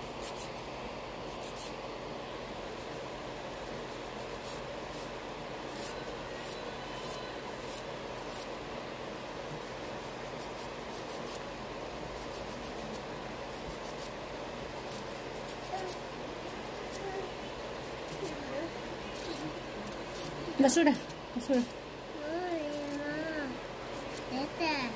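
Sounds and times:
nail file rasping on fingernails: 0.0 - 0.6, 1.3 - 1.8, 2.6 - 8.5, 9.4 - 11.5, 12.1 - 18.4, 23.8 - 24.3
dust collector fan humming: 0.0 - 24.9.

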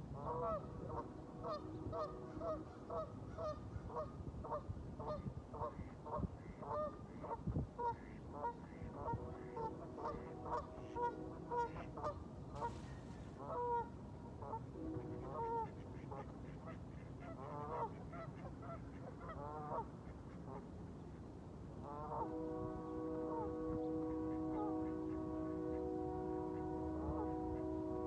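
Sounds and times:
geese honking: 7.8 - 19.9, 21.8 - 28.0.

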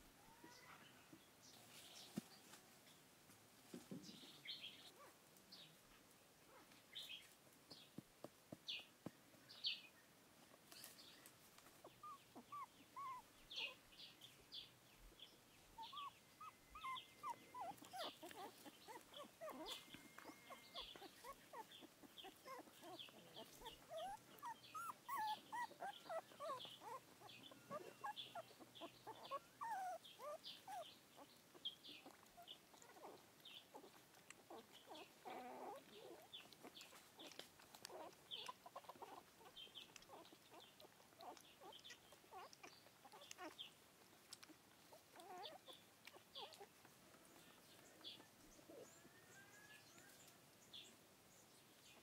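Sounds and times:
puppies whimpering and squeaking: 11.8 - 13.8, 15.7 - 43.7, 44.3 - 50.3.

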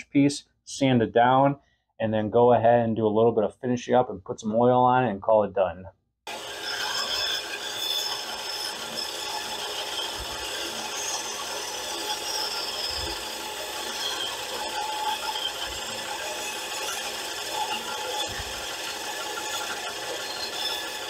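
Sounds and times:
band saw humming: 6.3 - 21.0
saw blade rasping through wood: 6.3 - 21.0.

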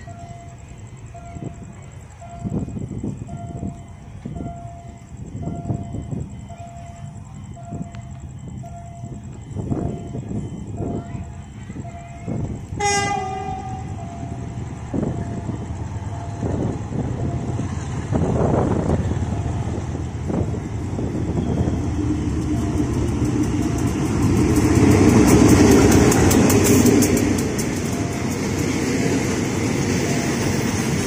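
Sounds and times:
freight train rumble: 0.0 - 31.0
locomotive horn: 12.7 - 14.4
wheels clattering over rail joints: 14.1 - 31.0.

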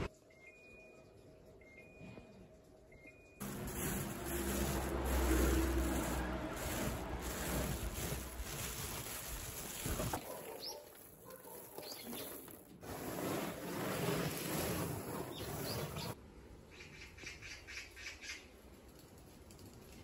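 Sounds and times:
hands brushing over cloth: 3.4 - 10.4
rice grains rustling: 3.4 - 11.2, 12.1 - 16.2.

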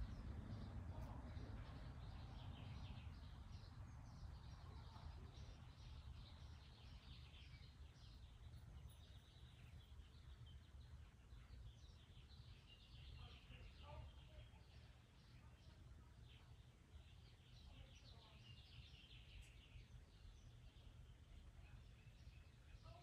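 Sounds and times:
low background rumble: 0.0 - 17.9.

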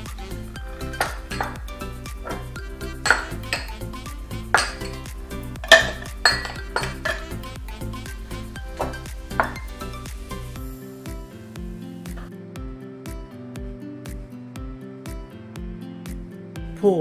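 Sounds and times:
background music: 0.0 - 17.0
glass bowls clinking: 0.7 - 7.6, 8.2 - 10.5
metal spoon clinking in bowl: 0.9 - 3.8, 4.4 - 7.4, 8.8 - 9.8.

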